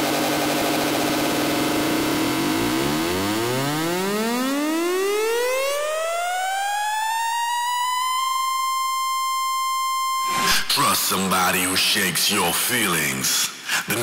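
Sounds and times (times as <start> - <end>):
buzzy synthesizer riser: 0.0 - 10.5.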